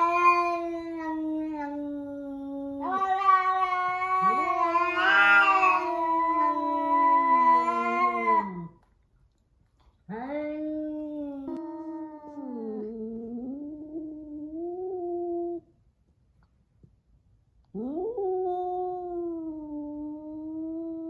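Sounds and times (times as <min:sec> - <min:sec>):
cats yowling: 0:00.0 - 0:01.8, 0:02.6 - 0:08.7.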